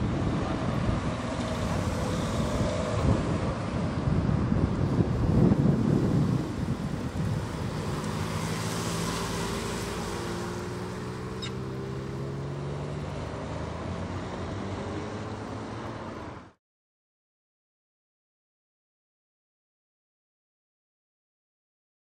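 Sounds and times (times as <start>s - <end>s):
tyre and road noise: 0.0s - 16.6s
car engine accelerating: 5.6s - 16.6s.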